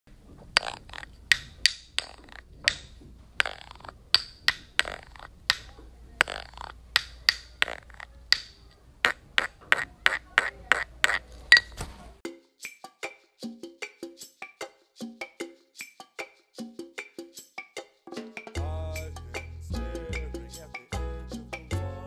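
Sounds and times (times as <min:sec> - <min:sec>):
sharp clicks or taps: 0:00.6 - 0:11.8.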